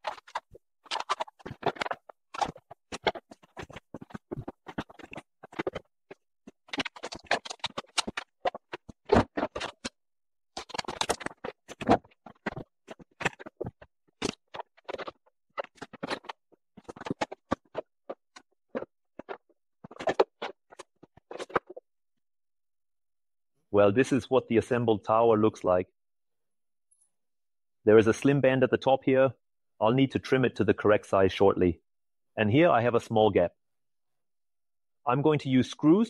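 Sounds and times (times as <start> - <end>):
battery cells knocking and scraping: 0.0 - 10.0, 10.6 - 21.8.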